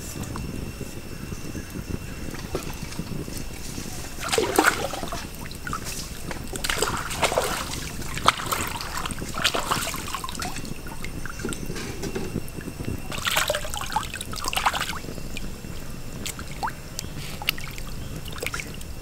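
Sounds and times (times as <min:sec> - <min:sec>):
running water: 0:00.0 - 0:19.0
water splashing in a stream: 0:03.9 - 0:11.8, 0:12.6 - 0:18.9.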